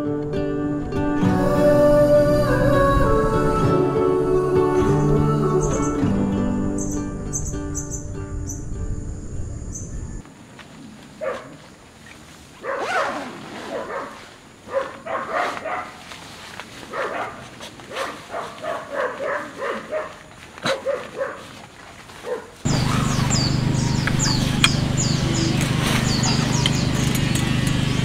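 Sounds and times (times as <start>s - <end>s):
steady hum: 0.4s - 10.2s, 22.7s - 28.0s
quick high chirps: 6.8s - 8.6s
small dog barking: 11.2s - 11.6s, 12.6s - 16.0s, 16.9s - 21.5s, 22.2s - 24.8s.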